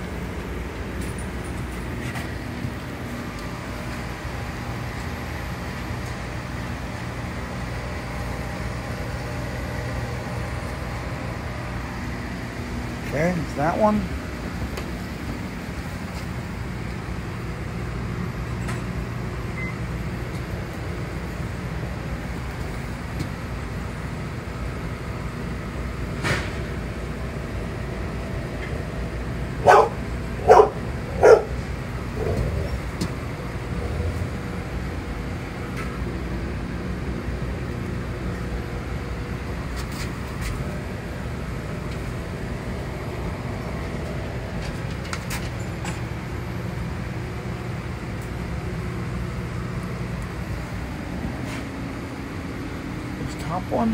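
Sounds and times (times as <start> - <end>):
aquarium equipment humming: 0.0 - 53.9
dog barks: 29.6 - 31.6.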